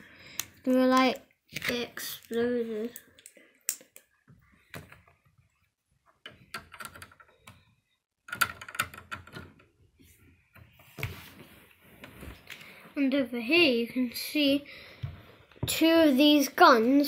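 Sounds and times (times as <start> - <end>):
plastic pieces clicking and clattering: 8.2 - 9.7.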